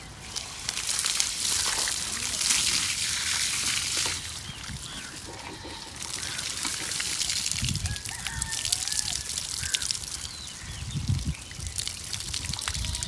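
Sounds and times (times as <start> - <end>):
hose water spraying on bricks: 0.0 - 13.0
water trickling down wall: 0.0 - 13.0.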